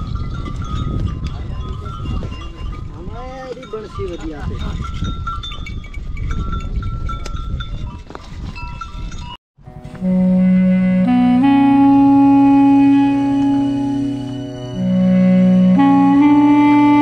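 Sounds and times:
animal bells clinking: 0:00.0 - 0:09.4
reedy flute long notes: 0:09.7 - 0:17.0
steady drone: 0:09.8 - 0:17.0.

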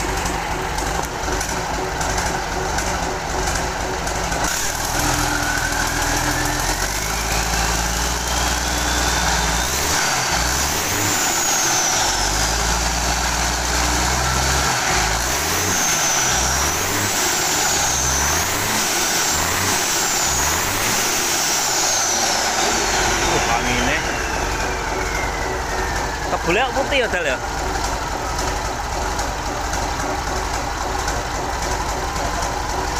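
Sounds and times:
diesel truck engine revving: 0:00.0 - 0:32.9.

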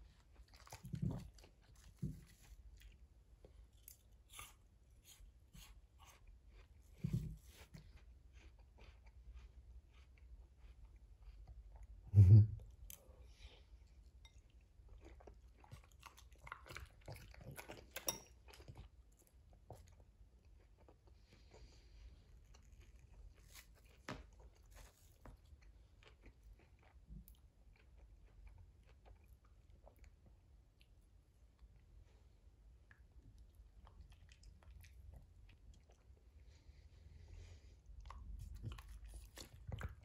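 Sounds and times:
dog chewing food: 0:14.9 - 0:20.0, 0:38.0 - 0:40.0.

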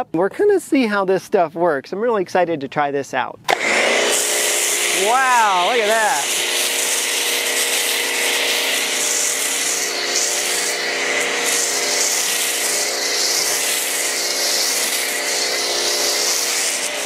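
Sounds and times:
pressure washer hum: 0:03.5 - 0:17.0
foam spray hissing: 0:03.9 - 0:17.0.

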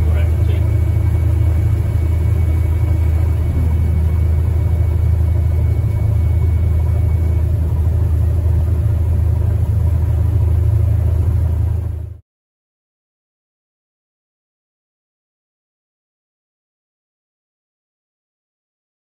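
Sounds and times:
combine harvester engine drone: 0:00.0 - 0:12.2.

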